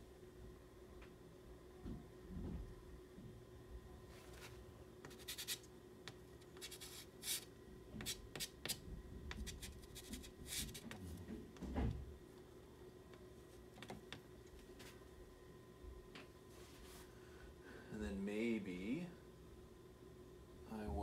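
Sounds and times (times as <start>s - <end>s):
pastel scratching on paper: 5.1s - 5.6s, 6.6s - 11.0s.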